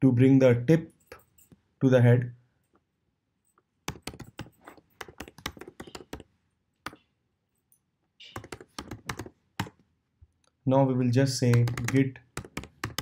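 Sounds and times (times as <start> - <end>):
typing on a keyboard: 3.8 - 7.0, 8.2 - 9.8, 11.5 - 13.0.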